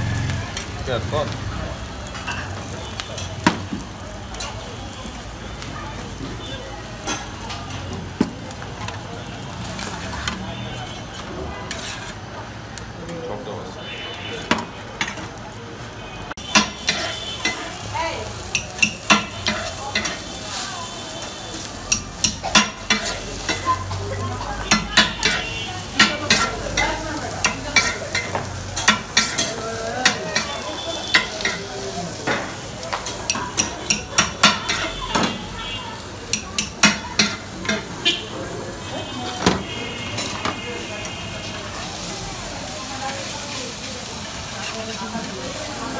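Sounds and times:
frying sizzle: 0.0 - 45.9
metal spatulas clacking on griddle: 7.0 - 7.8, 14.5 - 15.4, 16.5 - 17.7, 18.5 - 20.3, 21.8 - 35.3, 36.3 - 37.9.

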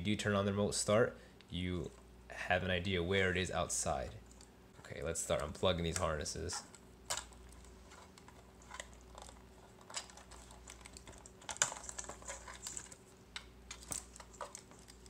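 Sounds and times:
wires rattling: 4.2 - 15.0.

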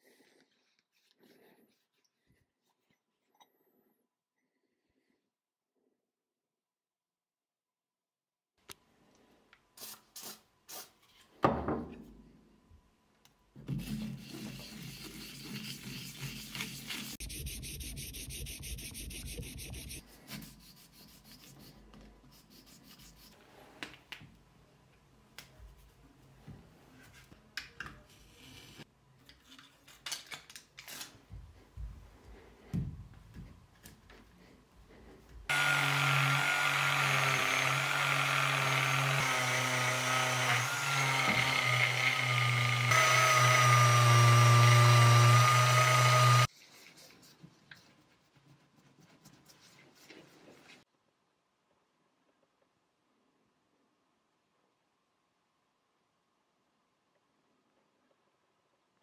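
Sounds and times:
metal scraping on abrasive paper: 14.0 - 20.0.

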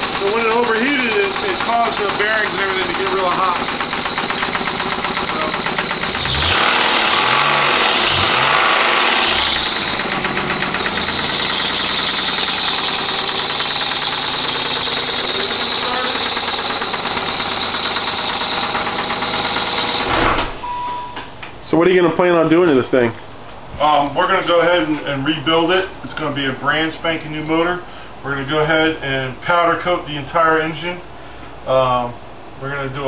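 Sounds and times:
engine running with fast knock: 0.0 - 20.6.

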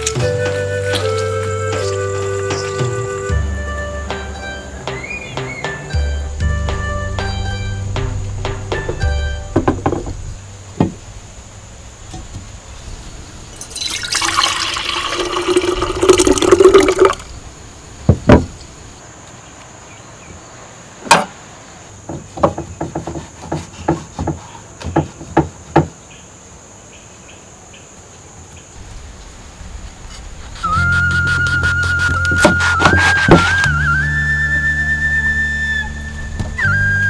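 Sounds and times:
dull knocks: 8.0 - 11.1, 18.1 - 18.6, 22.0 - 26.0
water poured into glass jug: 13.6 - 17.3.

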